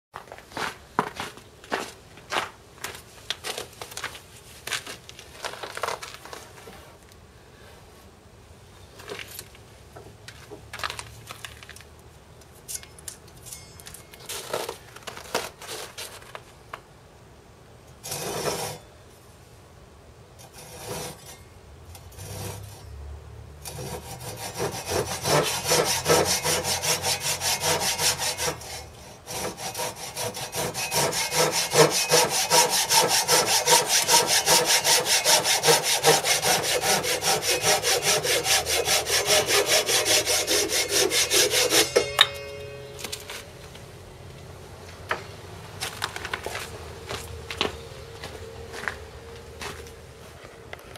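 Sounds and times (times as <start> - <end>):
hand saw cutting wood: 18.0 - 18.8, 20.4 - 21.4, 22.2 - 22.8, 23.6 - 42.2.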